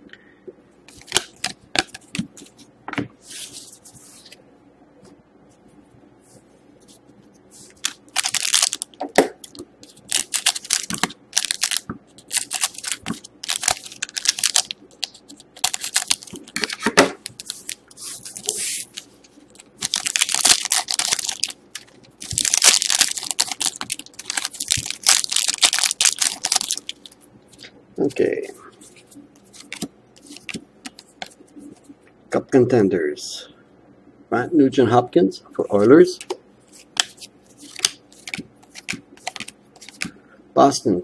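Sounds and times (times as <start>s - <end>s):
foil wrappers crinkling and tearing: 7.8s - 8.9s, 9.5s - 27.2s.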